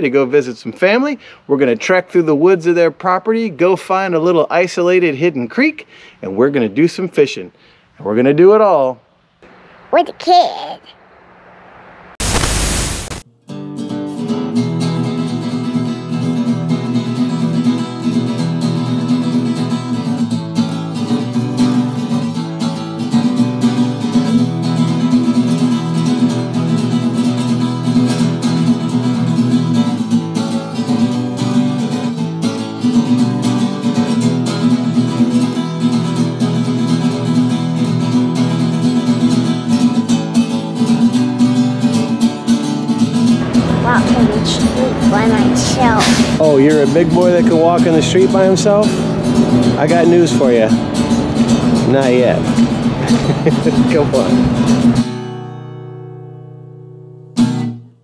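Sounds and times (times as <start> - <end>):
acoustic guitar music: 13.1 - 58.0.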